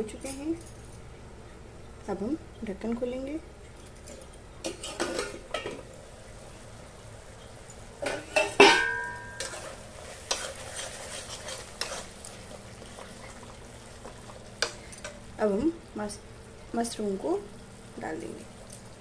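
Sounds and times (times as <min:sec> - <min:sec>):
food sizzling in pan: 0:04.6 - 0:19.0
metal spatula scraping pan: 0:04.7 - 0:05.6, 0:08.0 - 0:12.2
metal lid clanging: 0:08.0 - 0:09.7.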